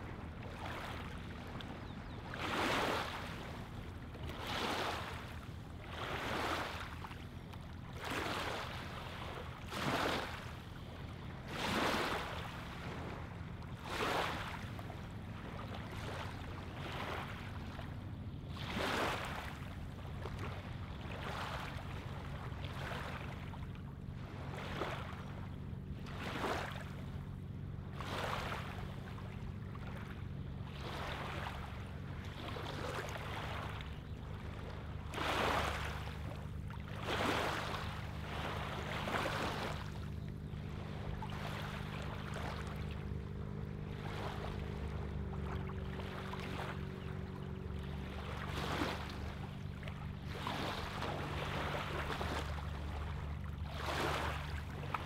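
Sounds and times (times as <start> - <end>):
steady low hum: 0.0 - 55.0
waves lapping on gravel shore: 4.4 - 7.0, 9.6 - 10.4, 35.1 - 40.0, 50.2 - 53.0, 53.7 - 55.0.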